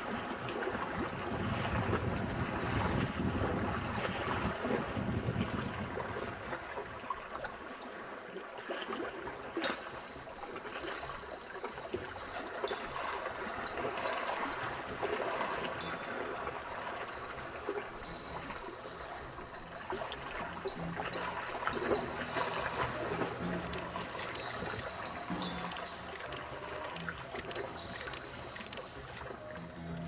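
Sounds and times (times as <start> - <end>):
water trickling: 0.0 - 30.0
small clicks and splashes: 4.0 - 30.0
high steady tone: 15.4 - 30.0.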